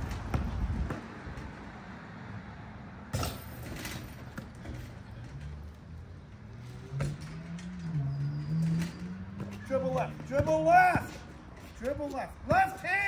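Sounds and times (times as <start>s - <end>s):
basketball thumping: 0.0s - 1.5s.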